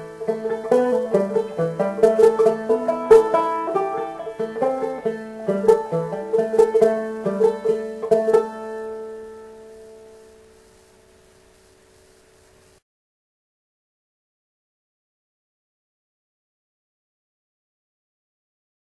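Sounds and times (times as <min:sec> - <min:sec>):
banjo picking a quick tune: 0:00.0 - 0:10.2.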